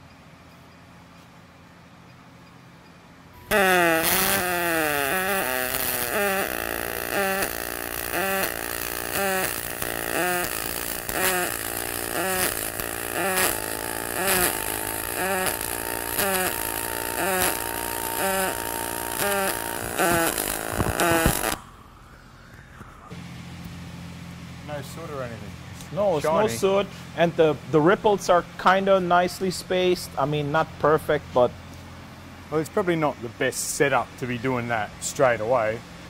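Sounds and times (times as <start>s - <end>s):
pulsing welding arc buzz: 3.4s - 22.4s.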